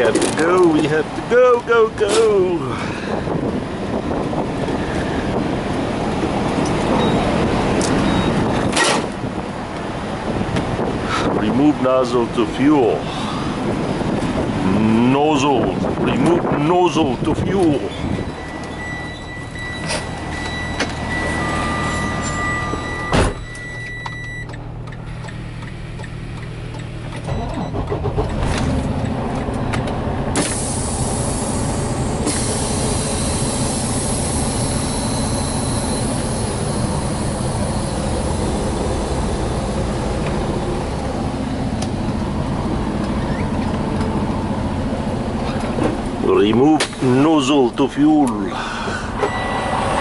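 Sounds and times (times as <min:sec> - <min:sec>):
truck diesel engine running: 0:00.0 - 0:50.0
high warning tone: 0:17.7 - 0:28.0, 0:30.9 - 0:39.8, 0:49.2 - 0:50.0.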